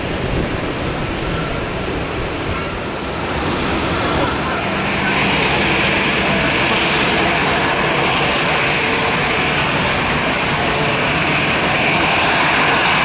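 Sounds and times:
jet engines rushing: 0:00.0 - 0:13.0.

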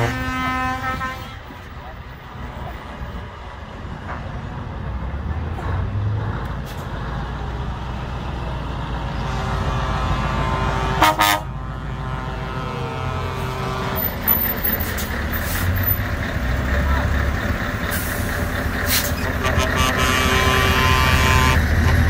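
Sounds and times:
truck horn blast: 0:00.0 - 0:01.8, 0:09.2 - 0:14.8, 0:19.1 - 0:22.0
diesel truck engine driving past: 0:02.1 - 0:22.0.

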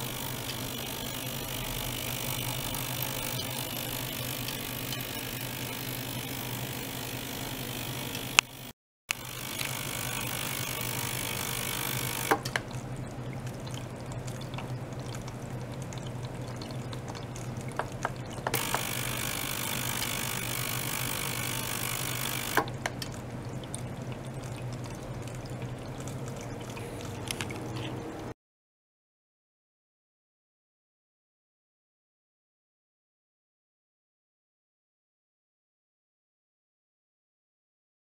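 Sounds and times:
water flowing through tubing: 0:00.0 - 0:28.3
pump low hum: 0:00.0 - 0:28.4.

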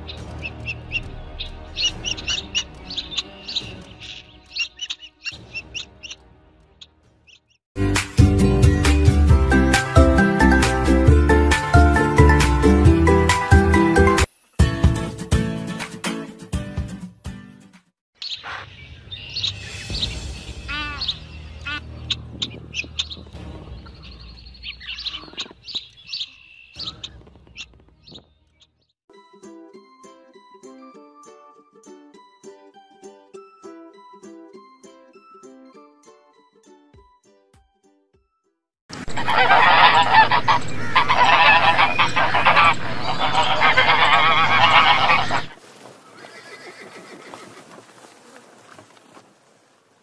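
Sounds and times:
birds chirping: 0:00.0 - 0:07.6, 0:18.2 - 0:28.9, 0:39.1 - 0:47.2
geese honking: 0:00.4 - 0:06.2, 0:20.7 - 0:23.2, 0:39.0 - 0:45.6.

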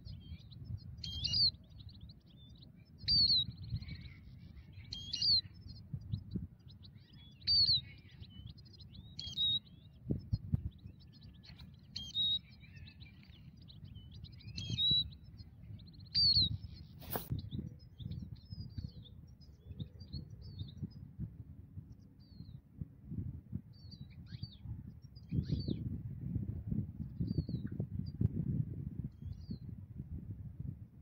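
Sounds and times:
finches twittering: 0:00.0 - 0:21.2
low rumble on microphone: 0:00.0 - 0:31.0.

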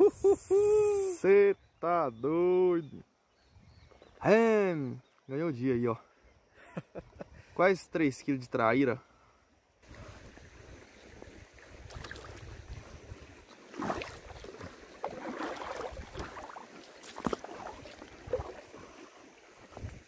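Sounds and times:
wind rumble on microphone: 0:09.9 - 0:13.4, 0:19.7 - 0:20.0
river water splashing on rocks: 0:10.2 - 0:20.0.

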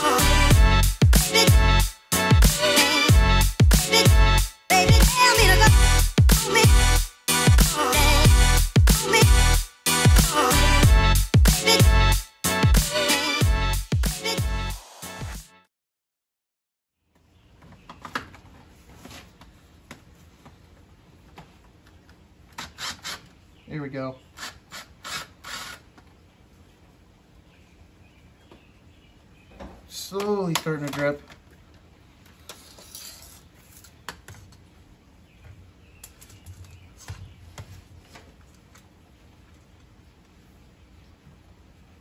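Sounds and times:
drill clicks and taps: 0:21.9 - 0:23.4.

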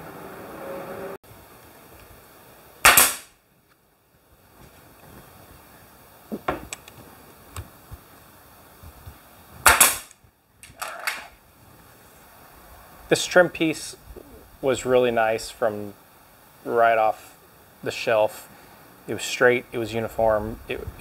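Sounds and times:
nail gun shots: 0:02.8 - 0:03.3, 0:09.6 - 0:10.1.

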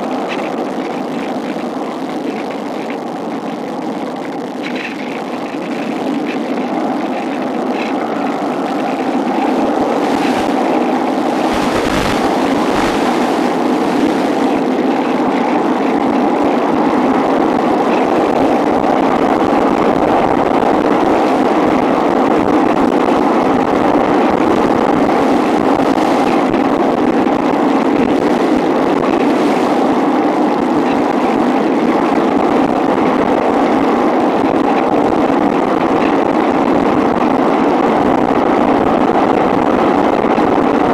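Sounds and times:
air rushing past glider: 0:07.6 - 0:22.3.

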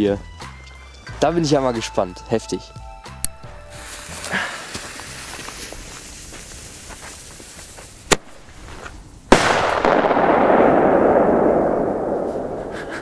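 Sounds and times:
echo rolling off hills: 0:03.5 - 0:13.0
firecracker bangs: 0:09.3 - 0:13.0.

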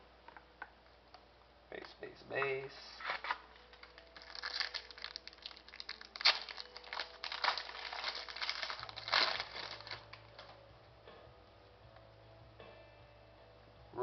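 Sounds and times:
wrapper tearing and crinkling: 0:02.9 - 0:10.6.

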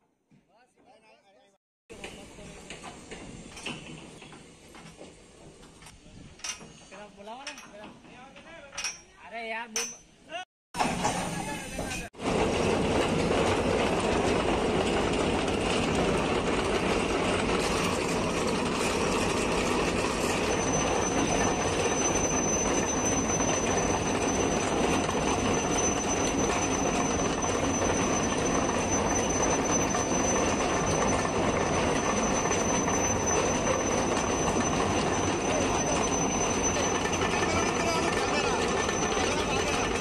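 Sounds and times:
rail wagons rumbling: 0:10.8 - 0:40.0.

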